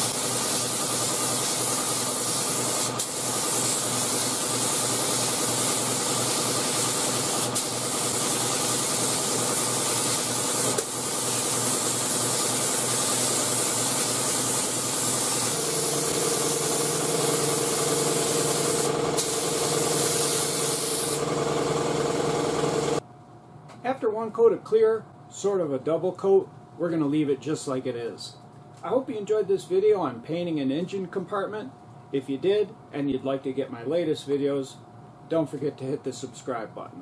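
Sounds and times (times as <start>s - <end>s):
spray gun hissing: 0.0s - 21.4s.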